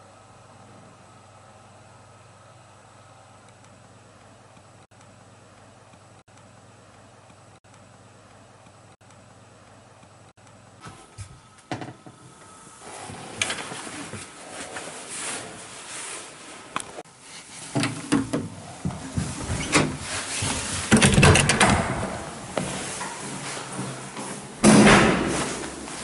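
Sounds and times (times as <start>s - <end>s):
clothing rustling: 12.9s - 20.9s
clicks and knocks: 20.8s - 22.3s.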